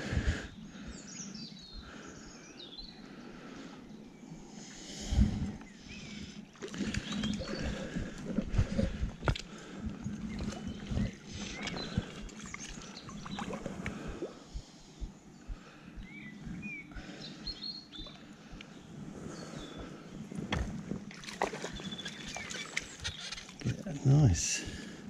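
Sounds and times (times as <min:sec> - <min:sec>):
river water sloshing and splashing: 0:06.2 - 0:14.4, 0:20.4 - 0:23.7
bird chirps: 0:14.8 - 0:20.2, 0:21.6 - 0:24.2.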